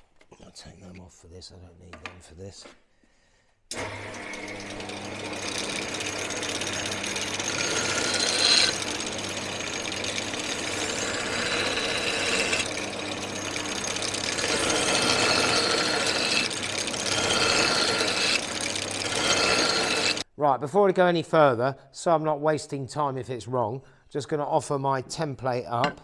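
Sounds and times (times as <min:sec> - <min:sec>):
sander motor hum: 0:03.7 - 0:20.2
metal grinding on sanding belt: 0:03.8 - 0:20.2.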